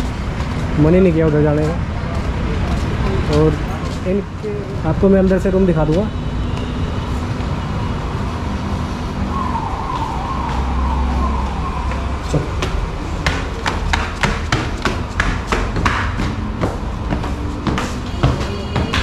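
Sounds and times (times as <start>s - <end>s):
footsteps on marble stairs: 0.0s - 4.5s, 9.8s - 19.0s
falling siren-like tone: 6.4s - 13.2s.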